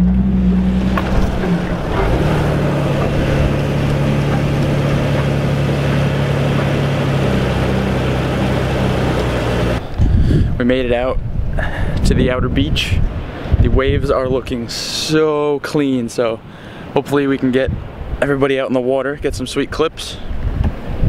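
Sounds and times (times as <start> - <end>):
car engine droning: 0.0 - 10.6
rush of wind: 0.0 - 15.3, 16.4 - 21.0.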